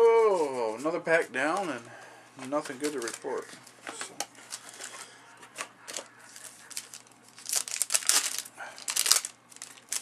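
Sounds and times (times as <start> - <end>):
cellophane wrapper crinkling: 2.6 - 3.5, 5.9 - 10.0.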